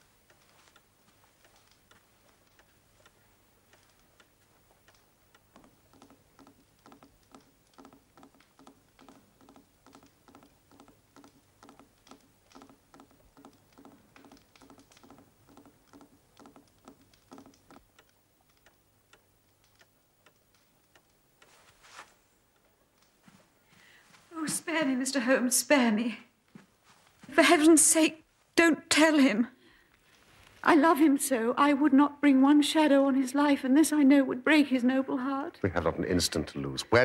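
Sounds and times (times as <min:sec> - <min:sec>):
clock ticking: 0:00.0 - 0:23.2.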